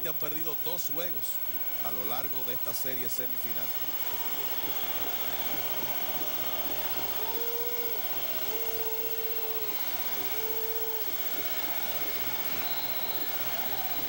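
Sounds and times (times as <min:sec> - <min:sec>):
crowd cheering and chanting: 0:00.0 - 0:14.0
long held notes: 0:03.6 - 0:14.0.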